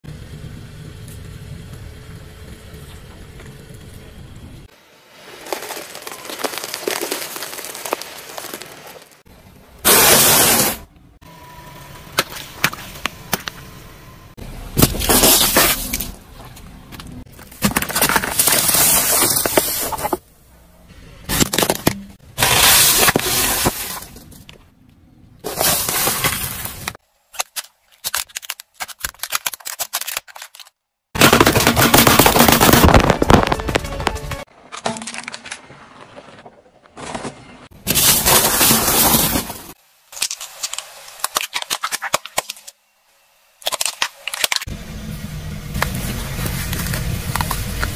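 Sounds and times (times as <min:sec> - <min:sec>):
hard candy crunching: 0:05.2 - 0:09.2, 0:27.3 - 0:34.2
sharp cracks: 0:25.8 - 0:35.7
plastic bottles bursting: 0:31.2 - 0:35.6.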